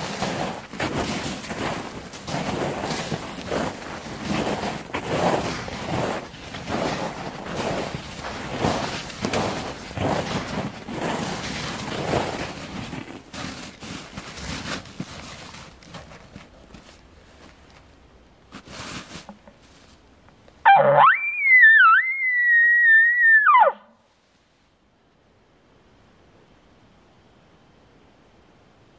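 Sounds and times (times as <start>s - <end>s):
footsteps crunching through snow: 0.0s - 20.1s
branches brushing: 0.0s - 20.2s.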